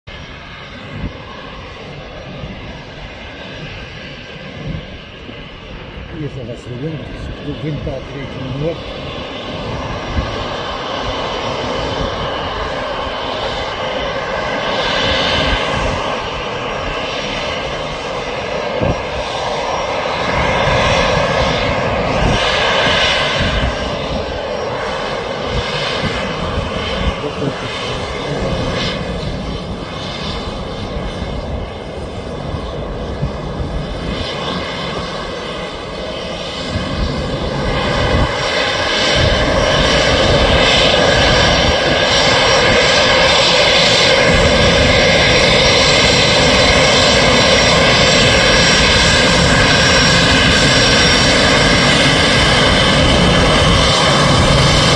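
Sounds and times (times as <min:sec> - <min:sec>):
jet engines whining: 0:00.1 - 0:54.9.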